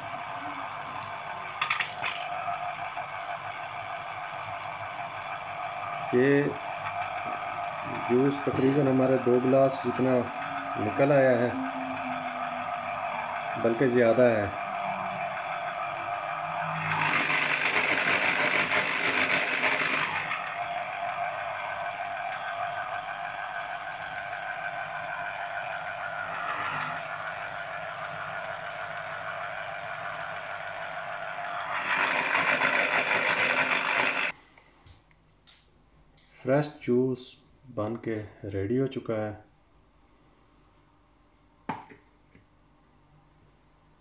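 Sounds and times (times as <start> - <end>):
electric juicer motor whirring: 0.0 - 34.4.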